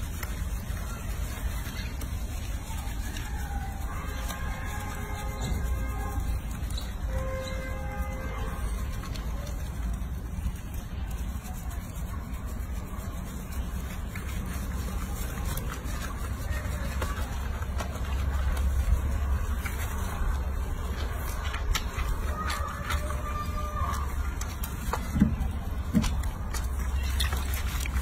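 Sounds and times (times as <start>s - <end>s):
water splashing in a sink: 0.0s - 28.0s.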